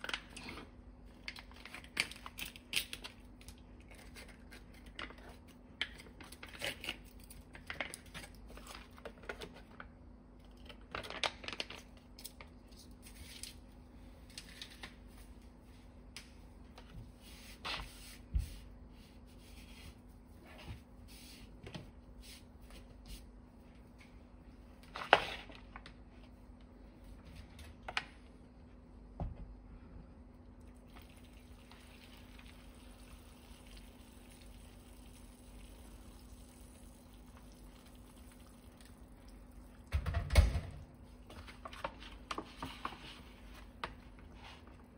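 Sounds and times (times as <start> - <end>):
plastic and foil crinkling: 0.0 - 9.9, 10.5 - 15.2, 41.1 - 44.9.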